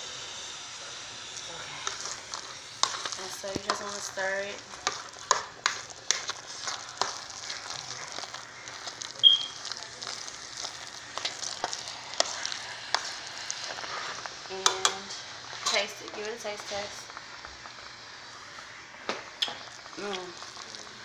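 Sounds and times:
sizzling in a pot: 0.0s - 21.0s
utensil scraping a pot: 1.4s - 17.2s.

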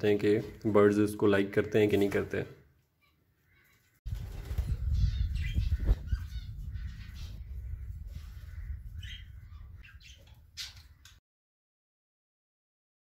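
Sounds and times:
low microphone rumble: 4.1s - 9.8s
budgerigars chirping and squawking: 4.8s - 11.2s.

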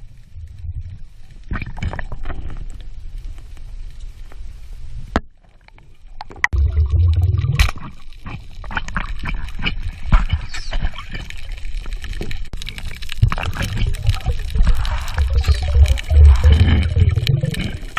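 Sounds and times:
underwater rushing water: 6.5s - 17.9s.

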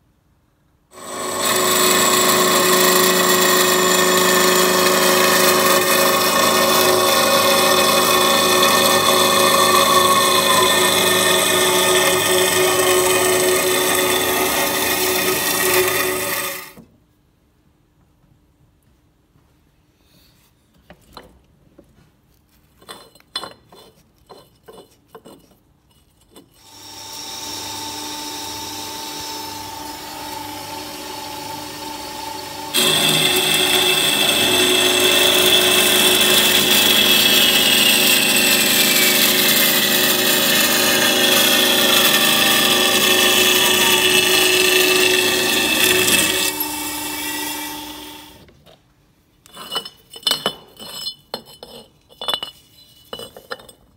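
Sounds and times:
saw cutting steel tube: 0.9s - 16.8s, 26.6s - 48.4s
band saw humming: 1.0s - 16.7s, 26.7s - 48.4s.

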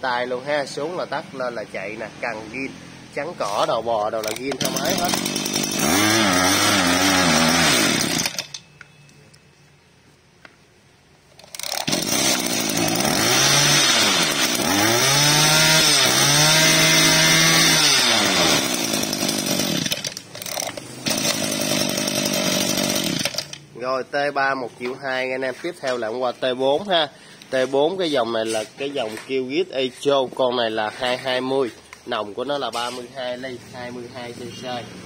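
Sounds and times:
brush-cutter engine revving: 2.4s - 8.6s, 11.4s - 23.7s.

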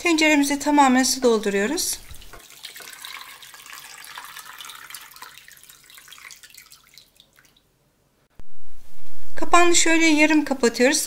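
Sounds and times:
water pouring into metal pot: 2.0s - 7.6s.

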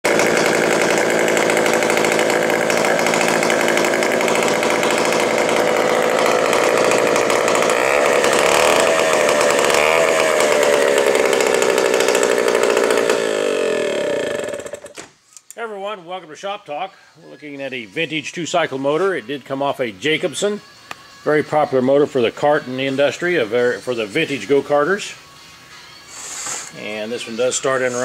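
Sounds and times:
two-stroke engine revving: 0.0s - 14.9s.

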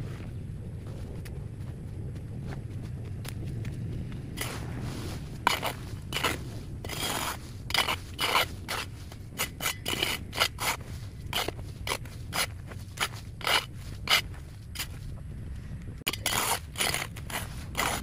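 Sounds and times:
hand tool cutting vegetation: 5.4s - 15.0s, 16.1s - 18.0s.

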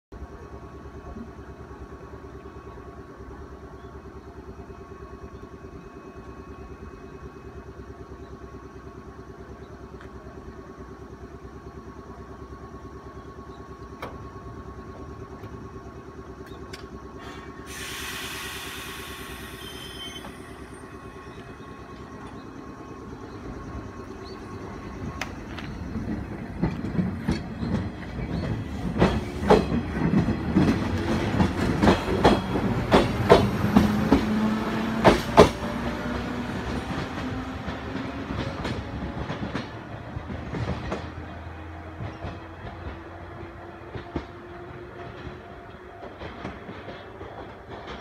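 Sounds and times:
train equipment humming: 0.2s - 48.0s
burst of hiss: 17.2s - 20.2s.

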